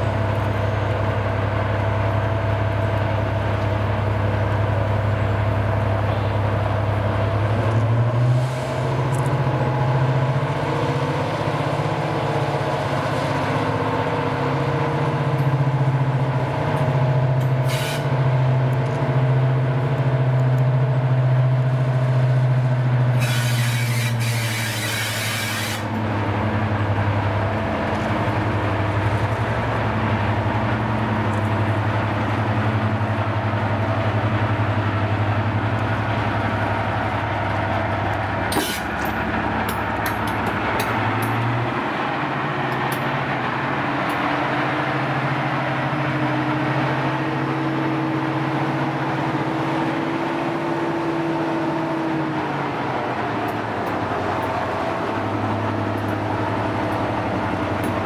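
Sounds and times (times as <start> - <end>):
diesel locomotive engines running: 0.0 - 58.0
air hissing: 17.6 - 18.1, 23.2 - 25.9, 38.5 - 38.9.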